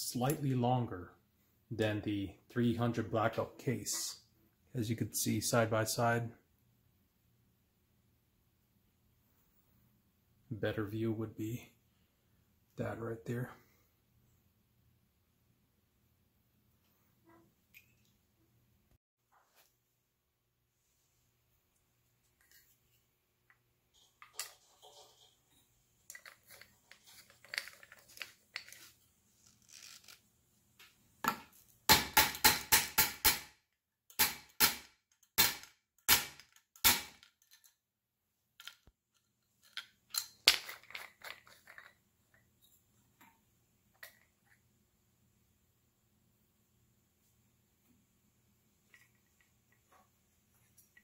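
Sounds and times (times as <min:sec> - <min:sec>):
tool clicks and rattles: 0:26.1 - 0:30.2, 0:34.1 - 0:37.8, 0:38.6 - 0:42.0.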